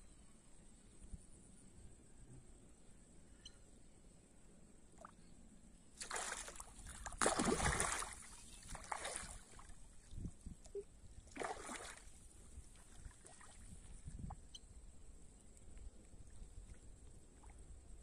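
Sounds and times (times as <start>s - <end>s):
hand splashing water: 6.0s - 9.5s, 11.4s - 12.0s.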